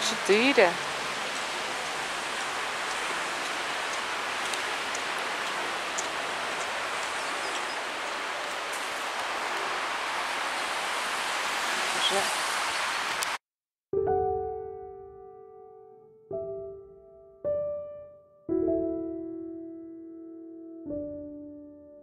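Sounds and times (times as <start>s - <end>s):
street noise hiss: 0.0s - 13.4s
faint ticks: 2.9s - 7.7s.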